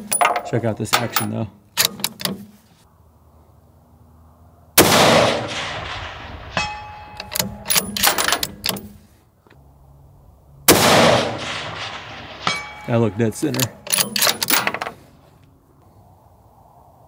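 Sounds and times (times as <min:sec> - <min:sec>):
rifle shot: 0:04.8 - 0:08.2, 0:10.7 - 0:12.8.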